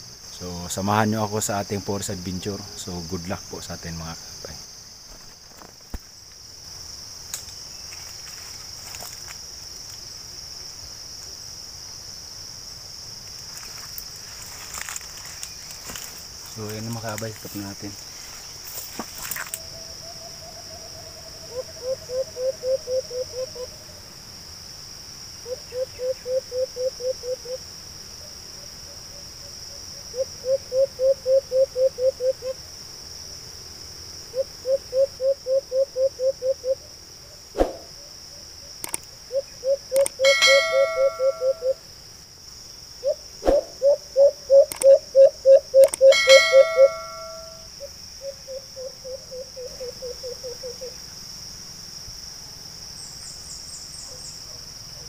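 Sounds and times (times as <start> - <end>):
high-pitched insect buzz: 0.0 - 24.7, 37.5 - 51.6
dove cooing: 19.6 - 23.8, 25.4 - 27.6, 30.1 - 32.6, 34.3 - 36.8, 39.3 - 41.8, 43.0 - 47.6, 48.2 - 51.0.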